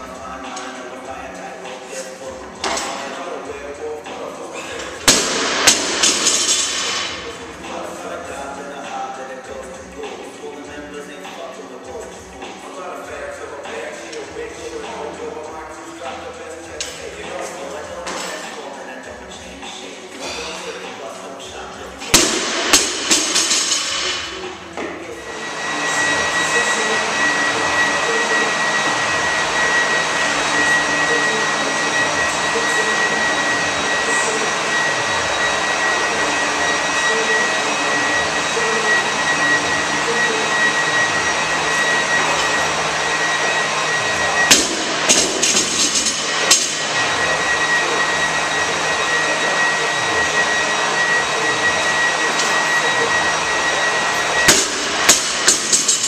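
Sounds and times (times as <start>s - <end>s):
rushing noise with high whine: 4.6s - 8.1s, 22.0s - 56.0s.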